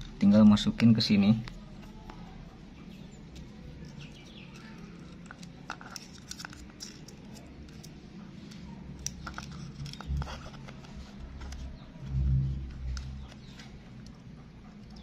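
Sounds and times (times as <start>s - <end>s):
plastic and wire clicks and rustles: 3.4s - 14.2s.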